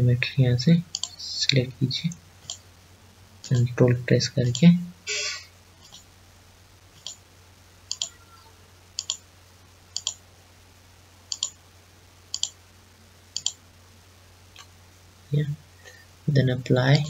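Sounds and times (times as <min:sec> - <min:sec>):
computer mouse button clicking: 0:07.9 - 0:08.2, 0:09.0 - 0:09.2, 0:10.0 - 0:10.2, 0:11.3 - 0:11.6, 0:12.3 - 0:12.6.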